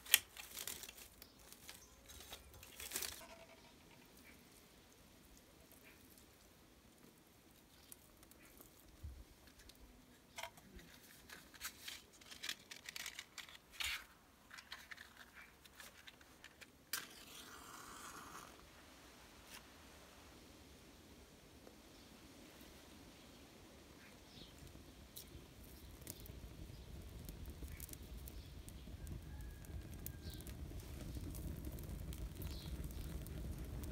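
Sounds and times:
match striking and flaring: 0.0s - 4.4s, 7.6s - 18.7s, 24.4s - 33.9s
dry sticks crackling and rustling: 0.0s - 17.4s, 24.4s - 33.9s.

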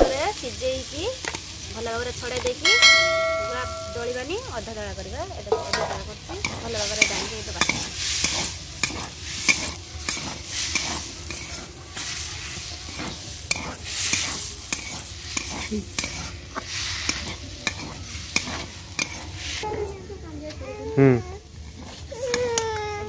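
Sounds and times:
masala sizzling: 0.0s - 23.0s
metal spatula scraping a pan: 5.4s - 19.7s.

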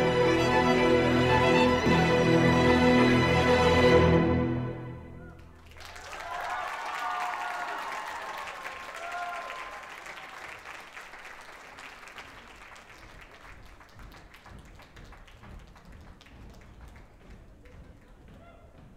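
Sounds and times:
audience cheering: 5.2s - 10.7s
audience applauding: 5.3s - 18.2s.

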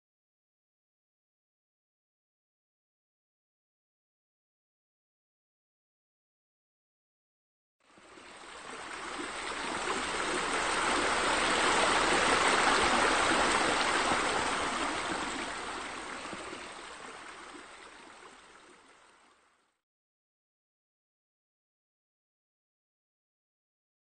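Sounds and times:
water pouring into pool: 8.0s - 19.4s.

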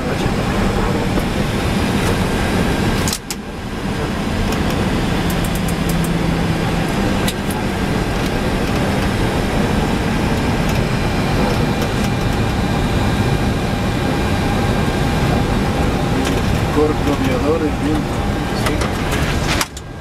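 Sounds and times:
aircraft engine and air noise: 0.0s - 20.0s
low hum: 0.0s - 20.0s.

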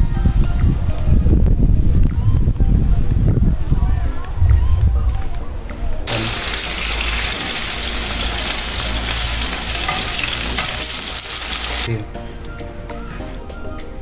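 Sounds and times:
flowing water rushing: 6.1s - 11.9s.

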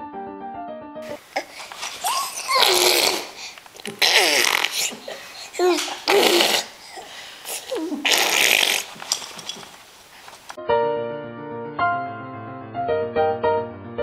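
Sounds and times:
baby blowing raspberries: 1.0s - 10.5s
piano notes: 10.6s - 14.0s.

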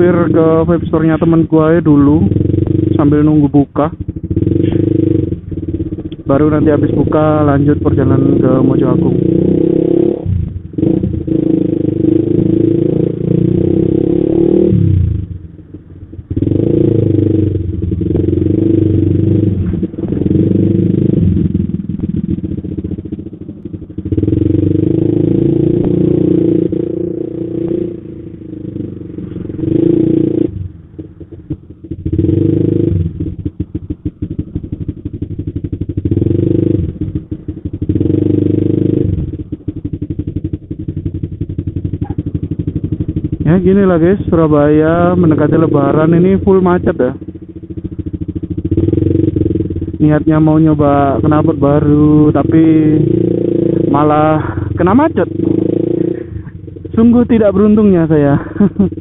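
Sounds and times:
motorcycle engine rumble: 0.0s - 59.0s.

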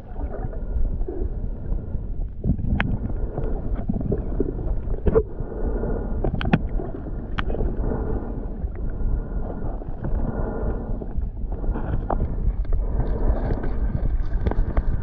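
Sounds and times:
muffled underwater rumble: 0.0s - 15.0s.

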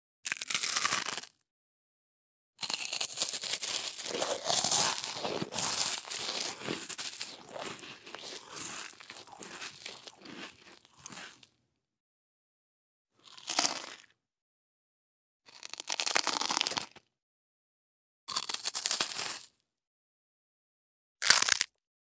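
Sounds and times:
person chewing crunchy food: 0.3s - 1.3s, 2.6s - 11.6s, 13.2s - 14.1s, 15.5s - 17.0s, 18.3s - 19.5s, 21.2s - 21.7s.

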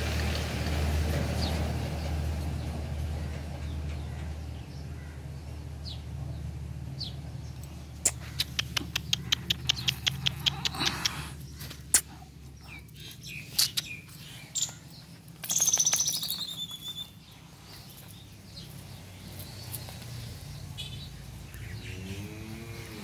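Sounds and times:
bird trilled call: 15.5s - 17.2s.

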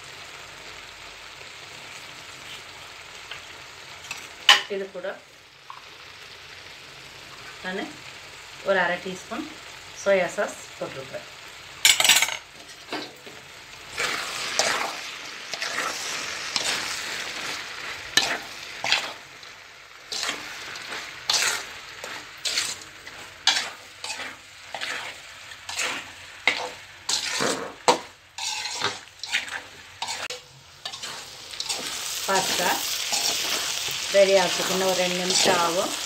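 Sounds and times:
pasta sizzling in a pot: 0.0s - 36.0s
spoon scraping metal pot: 23.5s - 31.8s.

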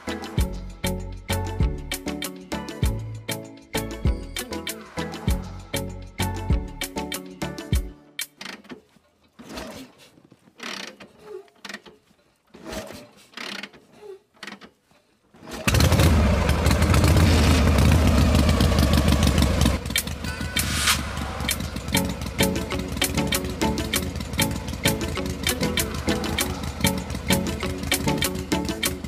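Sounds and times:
engine running with low rumble: 15.7s - 29.0s.

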